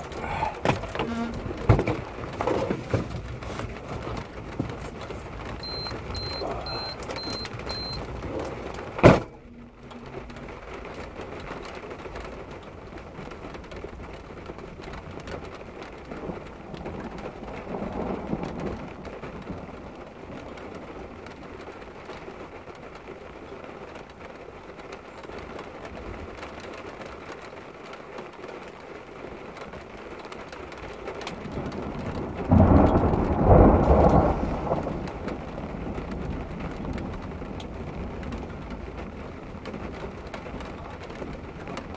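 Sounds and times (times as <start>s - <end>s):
thunder rumbling: 0.0s - 22.6s, 31.3s - 41.9s
steady rain: 0.0s - 41.9s.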